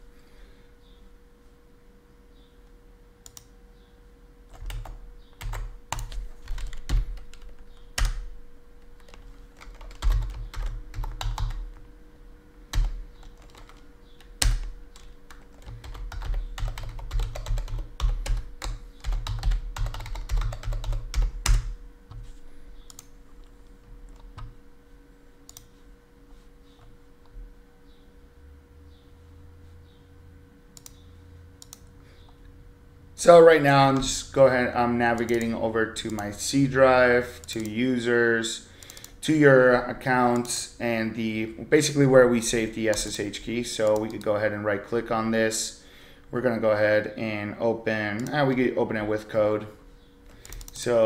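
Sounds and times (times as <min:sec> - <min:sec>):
faint steady hum: 0:00.0 - 0:51.0
typing on a laptop keyboard: 0:04.5 - 0:08.3, 0:09.0 - 0:11.7, 0:12.7 - 0:21.8, 0:50.4 - 0:50.8.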